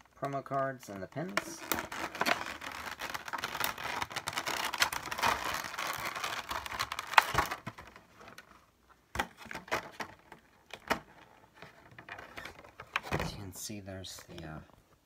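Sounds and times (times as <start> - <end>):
plastic packaging crinkling: 0.1 - 8.6.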